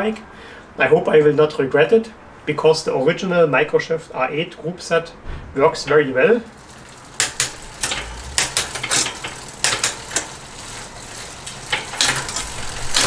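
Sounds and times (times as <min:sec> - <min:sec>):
bike chain clicking and rattling: 0:06.4 - 0:13.0.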